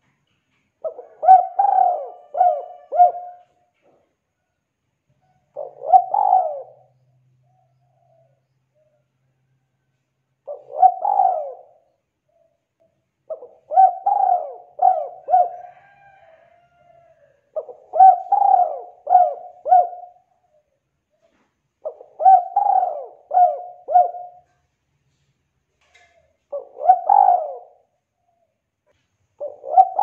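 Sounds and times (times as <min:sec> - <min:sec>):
dove cooing: 0:00.8 - 0:04.0, 0:05.4 - 0:09.0, 0:10.4 - 0:12.6, 0:13.3 - 0:24.6, 0:26.0 - 0:28.5, 0:29.4 - 0:30.0.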